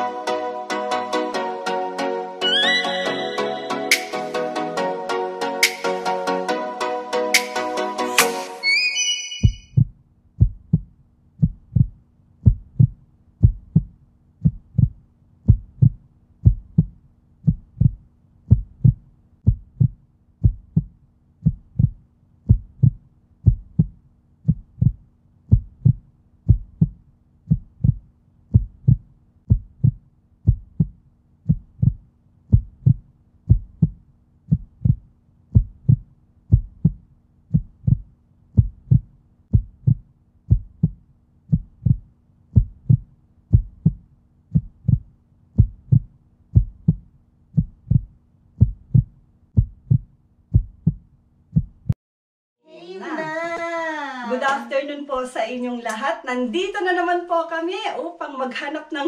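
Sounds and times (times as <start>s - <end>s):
heartbeat thumps: 9.4s - 52.0s.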